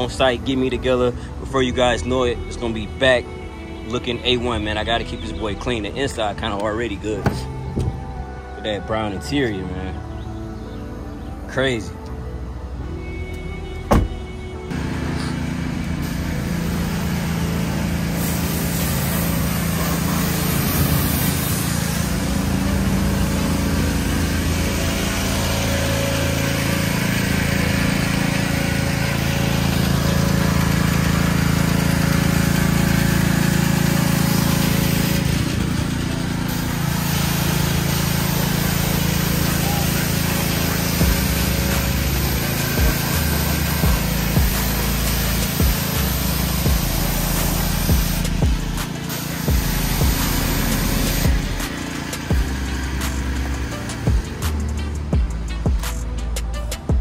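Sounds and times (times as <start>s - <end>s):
pressure washer hum: 13.0s - 56.9s
water spray hissing: 15.0s - 56.1s.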